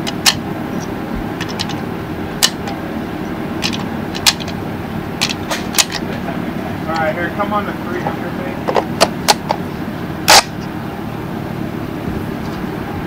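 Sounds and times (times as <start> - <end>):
steady low rumble: 0.0 - 13.0
cartridges clicking into magazine: 10.3 - 10.5.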